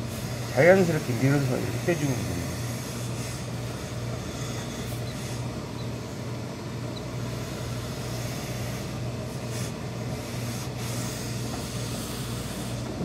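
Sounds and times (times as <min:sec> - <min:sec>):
low mechanical hum: 0:00.0 - 0:13.0
steam iron hissing: 0:00.0 - 0:13.0.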